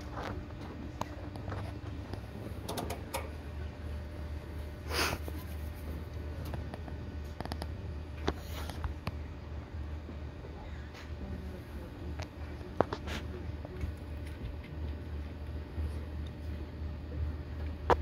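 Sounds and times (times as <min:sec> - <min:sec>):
low crowd rumble: 0:00.0 - 0:04.8
person sniffing or coughing: 0:04.9 - 0:05.4.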